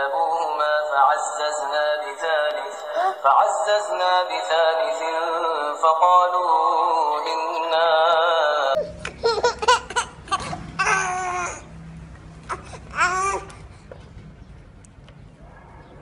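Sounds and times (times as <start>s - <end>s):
person chanting melodically: 0.0s - 9.0s
baby squealing and crying: 8.8s - 11.7s, 12.4s - 13.6s.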